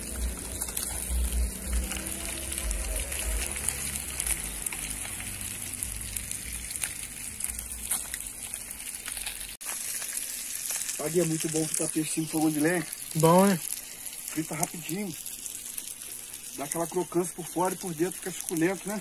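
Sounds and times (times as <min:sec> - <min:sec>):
low rumble: 0:00.0 - 0:08.8
fish sizzling in hot oil: 0:00.0 - 0:19.0.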